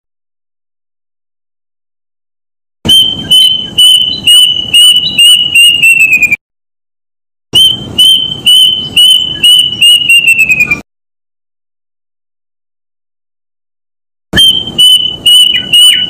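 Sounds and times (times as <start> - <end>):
cuckoo singing: 2.9 - 6.4, 7.6 - 10.8, 14.4 - 16.0.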